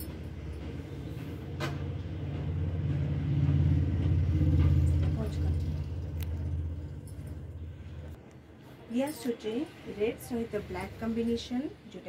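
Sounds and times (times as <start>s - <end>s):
vehicle engine rumble: 0.0s - 8.3s.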